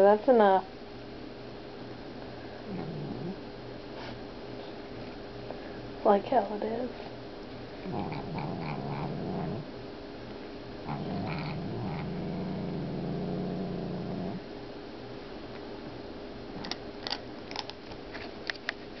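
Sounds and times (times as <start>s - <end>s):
cat growling low: 2.6s - 3.4s, 7.8s - 9.7s, 10.8s - 14.5s.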